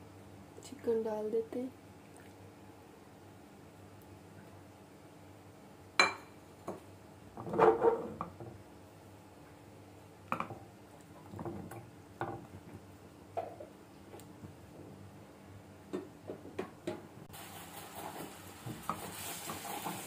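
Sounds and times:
dishes and utensils clattering: 0:07.4 - 0:08.4
spatula stirring in frying pan: 0:17.4 - 0:20.0.

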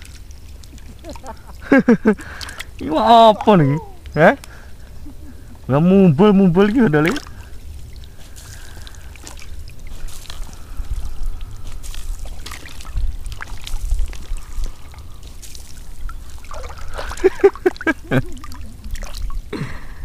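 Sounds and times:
water sloshing and trickling: 0:00.0 - 0:19.9
person's voice: 0:02.8 - 0:04.4.

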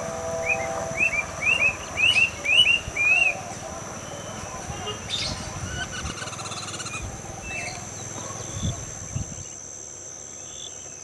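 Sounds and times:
high-pitched insect drone: 0:00.0 - 0:08.0
birds whistling: 0:00.3 - 0:09.6.

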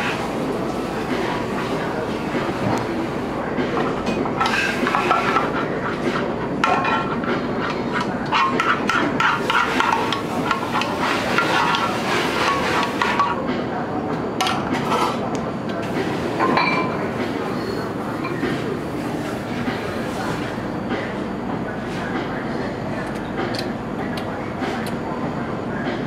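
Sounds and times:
metal spoon scraping a frying pan: 0:06.8 - 0:13.3.

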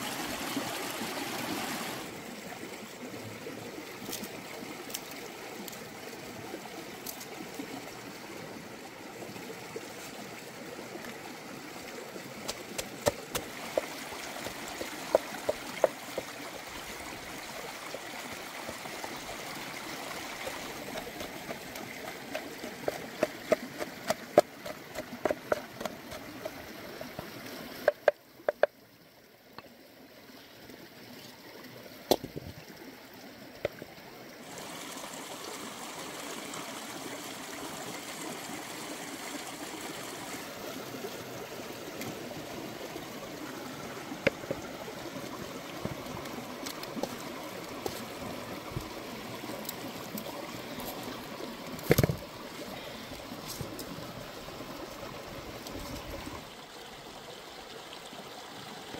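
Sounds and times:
stream flowing: 0:00.0 - 0:58.9
wooden pestle pounding in mortar: 0:20.9 - 0:26.2.

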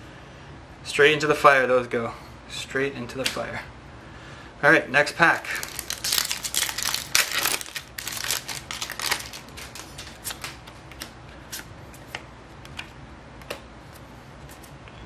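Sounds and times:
foil wrapper crinkling: 0:05.4 - 0:10.8.

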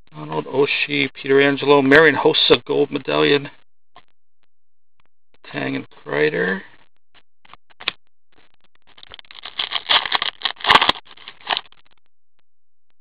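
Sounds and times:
plastic wrapper crackling: 0:08.9 - 0:11.8.

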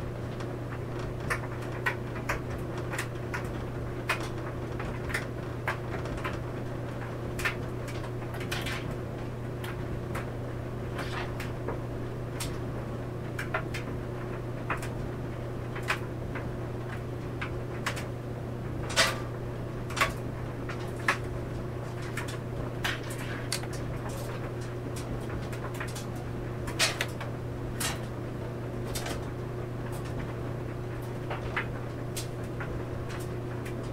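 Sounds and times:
clothes dryer humming: 0:00.0 - 0:33.9.

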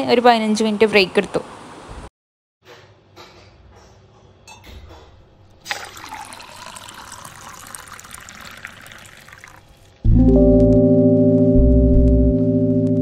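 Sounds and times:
tea pouring into a glass mug: 0:05.6 - 0:10.0.

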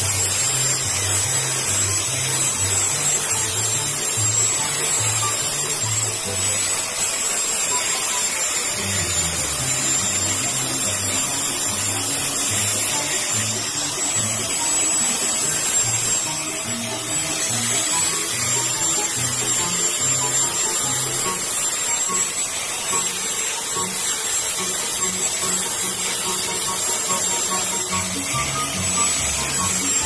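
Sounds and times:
angle grinder sanding wood: 0:00.0 - 0:30.0
background music: 0:00.0 - 0:30.0.

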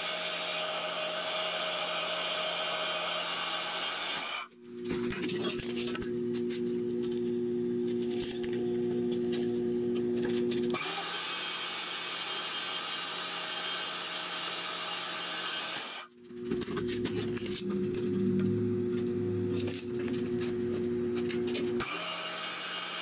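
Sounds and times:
band saw motor hum: 0:05.4 - 0:23.0.

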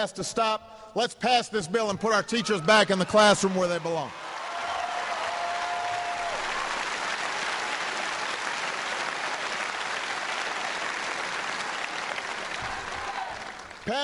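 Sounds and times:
large crowd applauding: 0:03.1 - 0:14.0.

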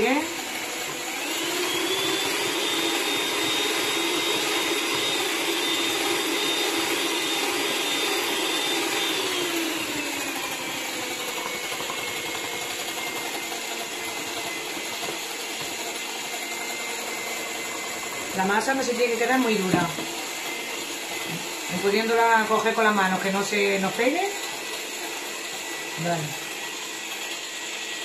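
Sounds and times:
electric hand mixer whine: 0:00.0 - 0:28.0.

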